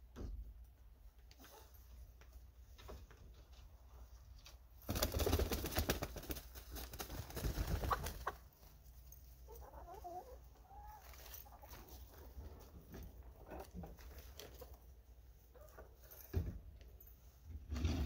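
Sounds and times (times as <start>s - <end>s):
hen flapping wings: 4.8s - 8.4s
hens clucking: 7.2s - 8.7s, 9.3s - 16.1s.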